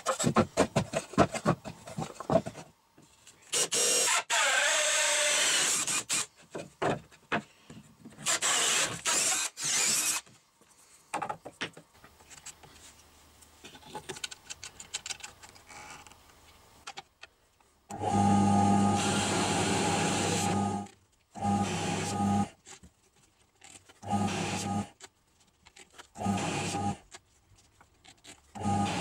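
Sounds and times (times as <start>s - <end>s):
drill hole saw cutting board: 3.6s - 6.3s, 8.2s - 10.2s, 17.9s - 22.5s, 24.0s - 24.9s, 26.2s - 27.0s, 28.6s - 29.0s
handling clicks and rattles: 13.7s - 16.1s
electric motor humming: 17.9s - 22.5s, 26.2s - 27.0s, 28.6s - 29.0s.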